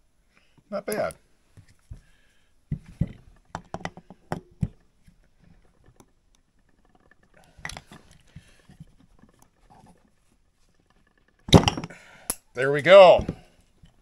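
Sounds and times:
metal tool clicks and knocks: 2.7 - 4.9.

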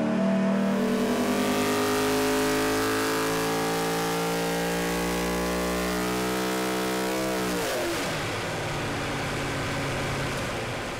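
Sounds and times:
race engine revving: 0.0 - 8.3.

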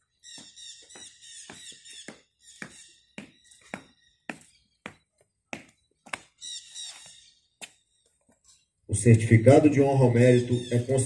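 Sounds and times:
birds chirping: 0.0 - 11.0
boots marching on stone: 0.3 - 6.4.

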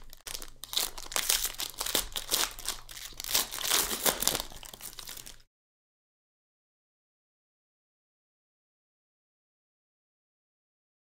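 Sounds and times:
foil wrapper crinkling: 0.0 - 5.5.

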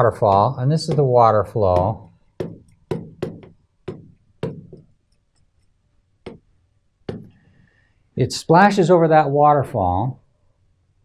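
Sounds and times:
stylus tapping on touchscreen: 0.0 - 7.5.

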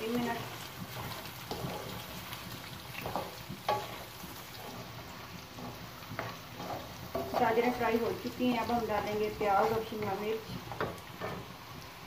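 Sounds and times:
food sizzling in a wok: 0.0 - 12.0
wooden spatula knocking on pan: 9.0 - 11.5.

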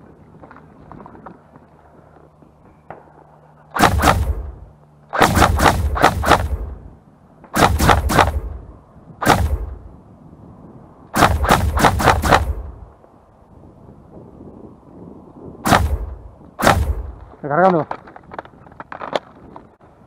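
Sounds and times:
airsoft rifle rapid shots: 3.8 - 6.8, 7.6 - 8.6, 9.2 - 9.8, 11.2 - 12.7, 15.7 - 17.1.

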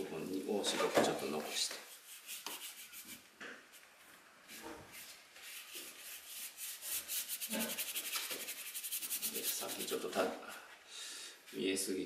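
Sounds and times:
brush scrubbing on paper: 1.8 - 3.2, 5.0 - 10.2.

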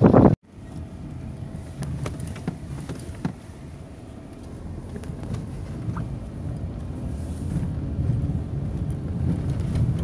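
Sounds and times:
wind buffeting microphone: 0.0 - 0.4, 4.9 - 10.0
low wind rumble: 0.0 - 10.0.

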